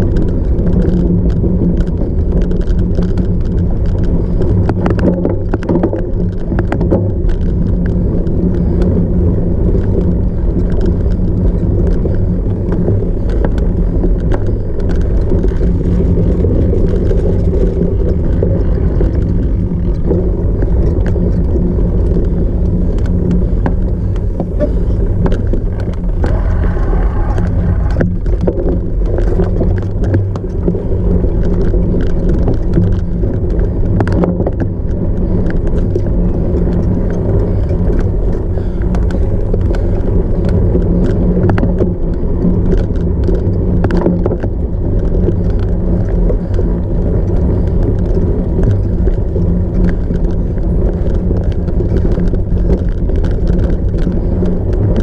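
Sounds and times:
bike rattling and clicking: 0:00.0 - 0:55.0
wind rumble on microphone: 0:00.0 - 0:55.0.

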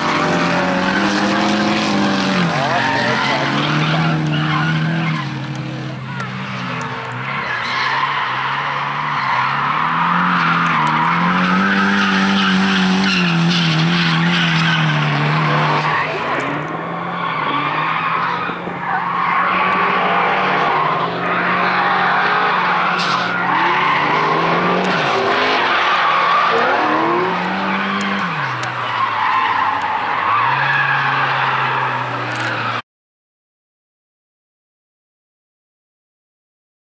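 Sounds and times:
car engine revving high: 0:00.0 - 0:07.6, 0:08.3 - 0:28.8
tyres screeching: 0:00.9 - 0:32.8.

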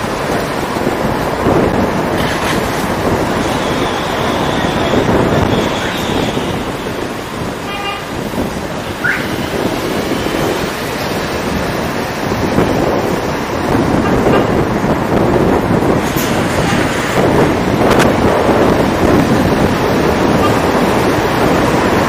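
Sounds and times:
street traffic: 0:00.0 - 0:22.0
wind and road noise: 0:00.0 - 0:22.0
car horn toot: 0:03.4 - 0:08.2, 0:20.3 - 0:20.8.

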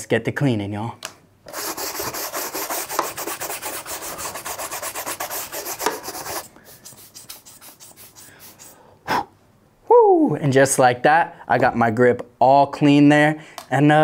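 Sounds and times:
stiff brush scrubbing grip tape: 0:01.5 - 0:08.8.

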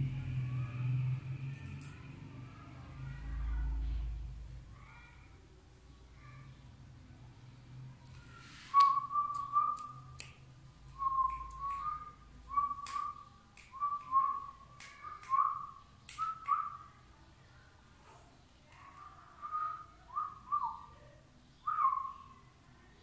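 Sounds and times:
person whistling short notes: 0:08.7 - 0:10.2.

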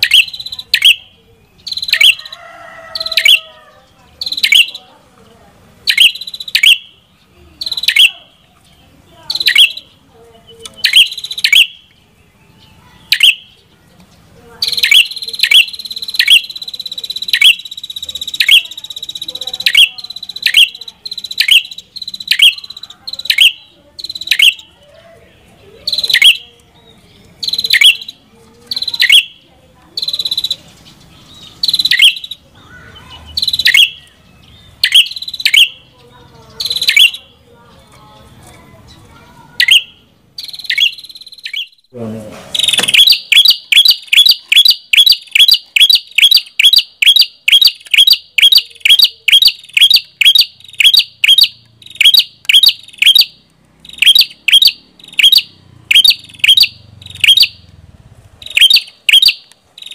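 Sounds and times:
bird singing sharp high notes: 0:00.0 - 0:02.3, 0:04.2 - 0:04.8, 0:05.8 - 0:07.0, 0:09.3 - 0:13.6, 0:14.6 - 0:24.7, 0:27.3 - 0:29.4, 0:30.0 - 0:36.0, 0:36.6 - 0:38.0, 0:39.5 - 0:41.9, 0:42.5 - 0:57.6, 0:58.4 - 0:59.9.

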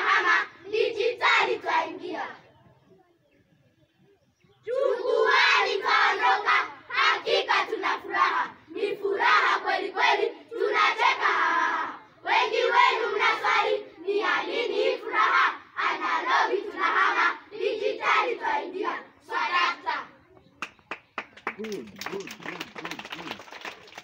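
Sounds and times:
children singing in unison: 0:00.0 - 0:02.5, 0:04.7 - 0:20.1.

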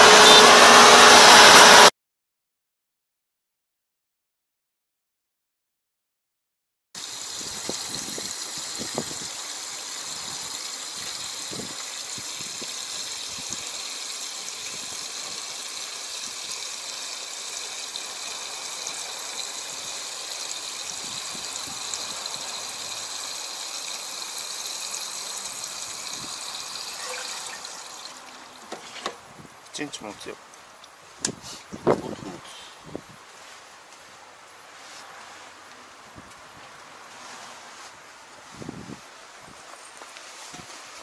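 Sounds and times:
fuel pouring into tank: 0:07.0 - 0:29.9.

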